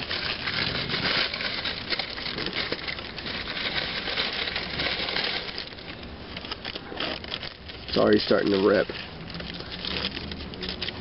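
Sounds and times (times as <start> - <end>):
paper wrapper crinkling: 0.0 - 11.0.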